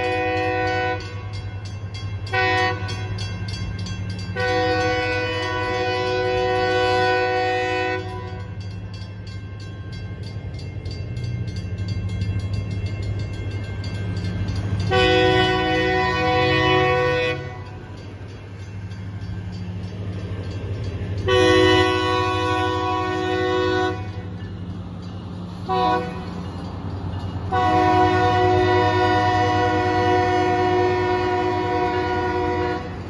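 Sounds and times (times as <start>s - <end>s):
locomotive horn blasts: 0.0s - 1.6s, 2.2s - 3.2s, 4.3s - 8.6s, 14.8s - 17.8s, 21.2s - 24.3s, 25.7s - 26.4s, 27.5s - 33.0s
crossing bell ringing: 0.0s - 33.0s.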